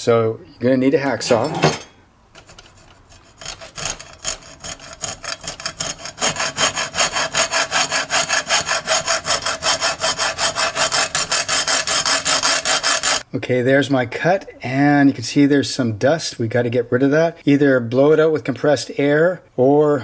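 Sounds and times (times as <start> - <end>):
hacksaw cutting hose: 2.4 - 13.3.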